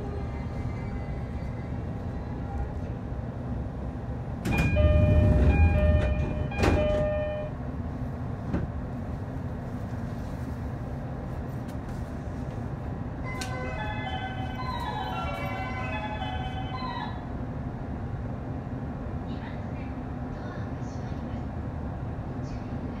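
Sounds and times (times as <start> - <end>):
electric train humming: 0.0 - 9.7, 10.9 - 19.3.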